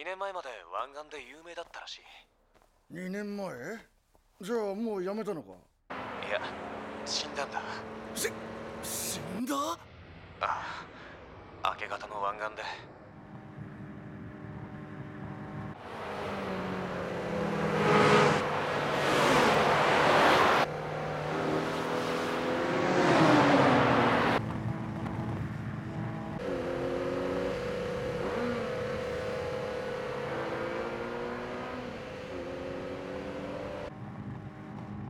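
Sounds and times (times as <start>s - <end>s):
sports car engines revving: 5.9s - 9.4s, 13.0s - 35.0s
cars rushing past: 5.9s - 11.8s, 12.9s - 34.9s
steady engine drone: 24.4s - 35.0s.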